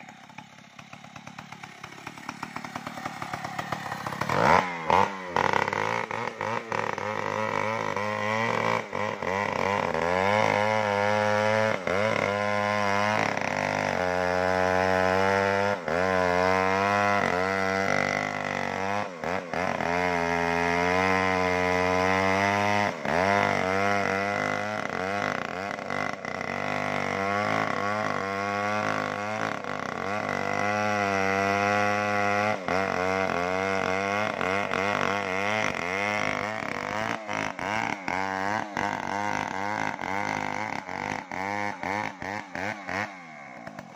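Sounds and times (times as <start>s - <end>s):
chainsaw cutting wood: 0.0s - 43.9s.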